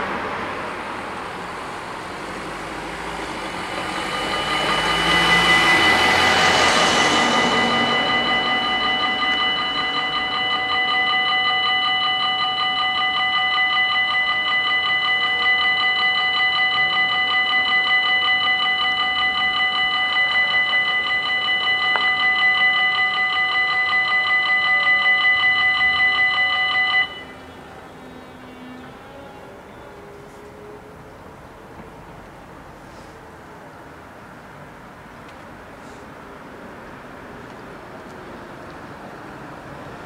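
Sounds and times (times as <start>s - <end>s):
level crossing bells ringing: 2.2s - 27.9s.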